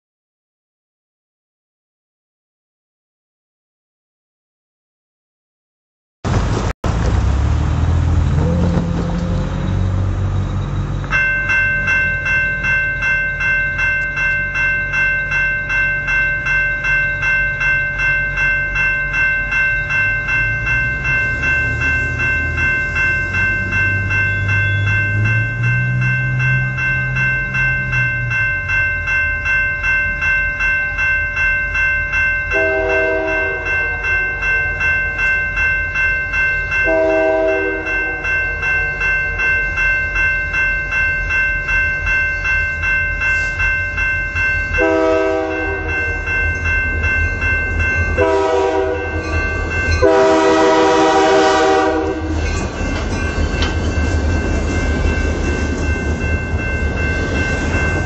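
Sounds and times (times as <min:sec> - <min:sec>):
passing road traffic: 0:06.3 - 0:14.9, 0:18.6 - 0:30.5, 0:32.7 - 0:58.0
railway crossing bell ringing: 0:08.2 - 0:58.0
locomotive air horn: 0:32.6 - 0:34.8, 0:36.8 - 0:38.6, 0:44.8 - 0:46.0, 0:48.2 - 0:49.2, 0:50.0 - 0:52.4.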